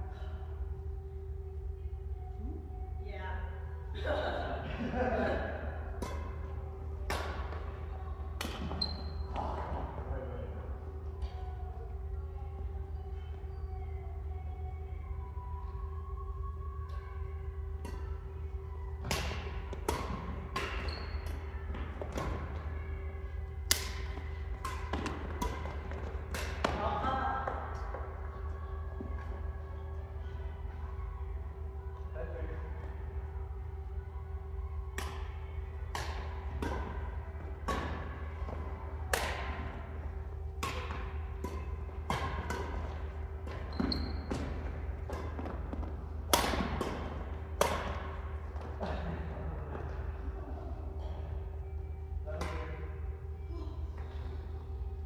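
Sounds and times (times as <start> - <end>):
low hum in a hall: 0.0 - 55.0
rackets hitting shuttlecock: 5.9 - 9.8, 17.8 - 18.4, 19.0 - 22.7, 23.6 - 28.0, 34.9 - 49.1.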